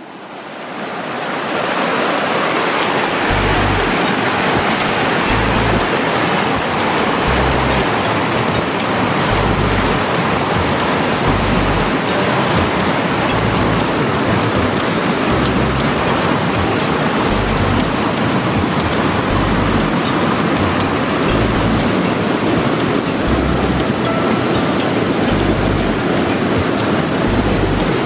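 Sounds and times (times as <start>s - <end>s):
rushing mountain stream: 0.0s - 28.0s
low rumbles: 3.3s - 4.0s, 5.3s - 5.9s, 7.2s - 7.9s, 9.3s - 10.0s, 11.3s - 11.9s, 13.3s - 13.9s, 17.3s - 18.0s, 19.2s - 20.0s, 20.6s - 22.0s, 23.3s - 23.9s, 25.3s - 26.0s, 27.2s - 28.0s.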